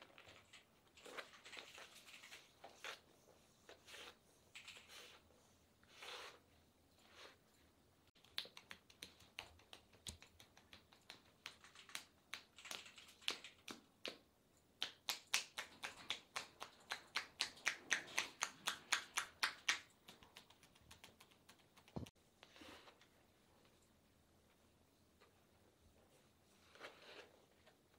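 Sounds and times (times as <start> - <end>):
hands patting on bare skin: 8.2 - 22.2.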